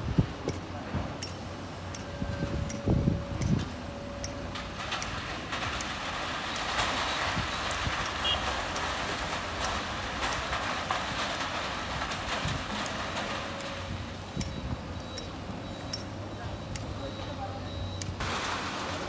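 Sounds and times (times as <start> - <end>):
excavator engine rumbling: 0.0 - 19.0
sand and stones pouring into truck: 4.5 - 14.3, 18.2 - 19.0.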